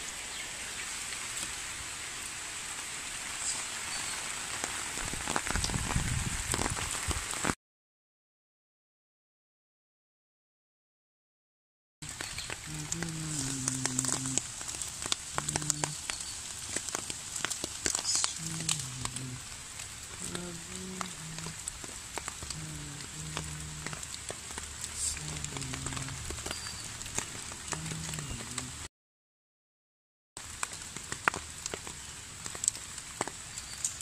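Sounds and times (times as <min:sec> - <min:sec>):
constant crackle: 0:00.0 - 0:07.6, 0:12.0 - 0:28.9, 0:30.4 - 0:34.0.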